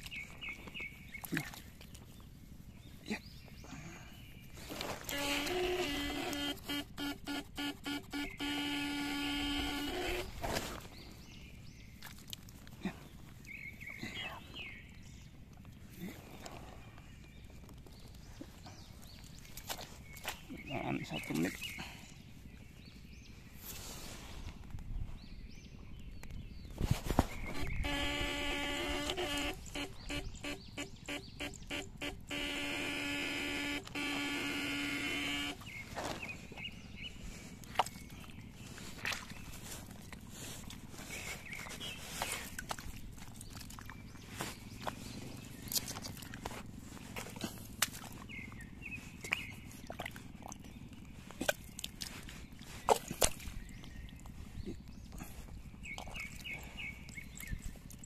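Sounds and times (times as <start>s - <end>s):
hand squelching in wet mud: 0.0s - 2.6s, 11.9s - 13.5s, 17.7s - 20.6s, 35.6s - 56.6s
splashes in wet mud: 1.2s - 2.0s, 47.4s - 48.2s, 49.2s - 50.7s
electroshocker buzzing hum: 5.1s - 10.4s, 27.5s - 35.9s.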